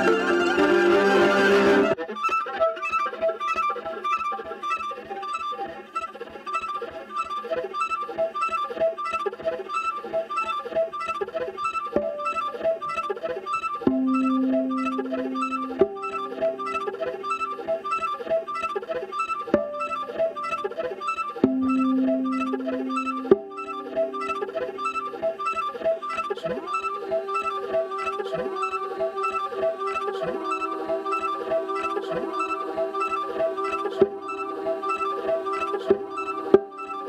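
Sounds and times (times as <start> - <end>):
solo viola playing: 0.0 - 37.0.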